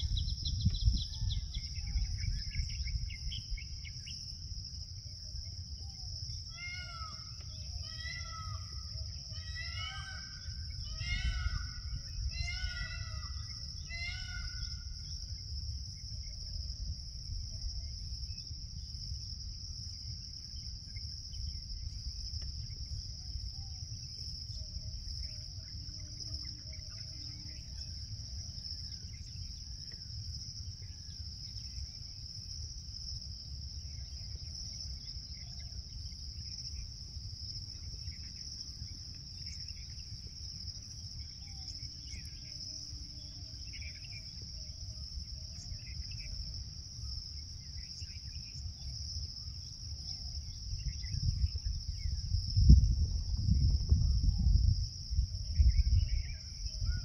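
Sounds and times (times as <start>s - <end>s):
faint bird chirps: 0.0s - 4.4s, 37.7s - 52.3s
high-pitched insect chorus: 0.0s - 57.0s.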